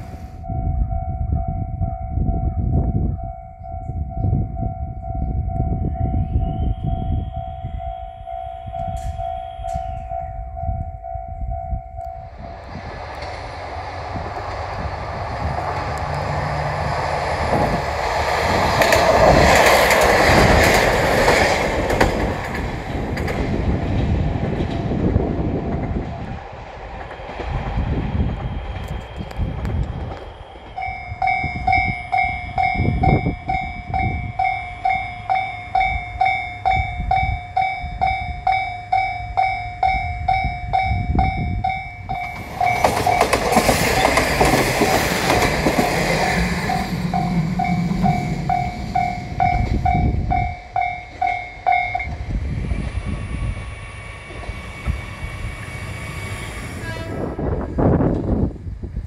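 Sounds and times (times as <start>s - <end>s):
level crossing alarm ringing: 0.4s - 12.6s, 30.4s - 52.2s
train wheels on rails: 4.1s - 59.0s.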